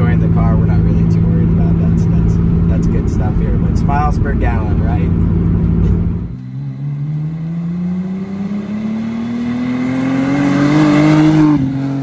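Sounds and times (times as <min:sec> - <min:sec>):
car engine accelerating past: 0:01.3 - 0:12.0.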